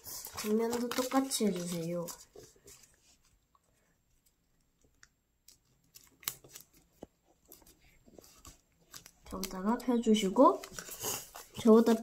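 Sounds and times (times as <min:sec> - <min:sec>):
paper rustling: 0:00.0 - 0:03.4, 0:05.8 - 0:12.0.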